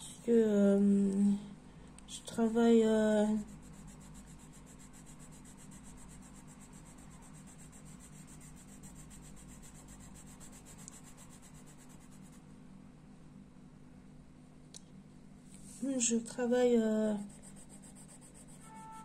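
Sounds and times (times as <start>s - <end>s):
steady low hum: 0.0s - 19.0s
pencil scratching on paper: 3.3s - 12.4s, 17.0s - 19.0s.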